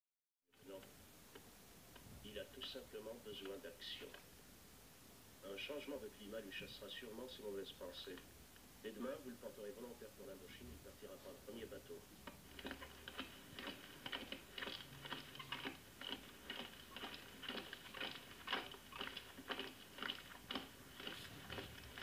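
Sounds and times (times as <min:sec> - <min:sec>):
soldiers marching in step: 0:12.2 - 0:22.0.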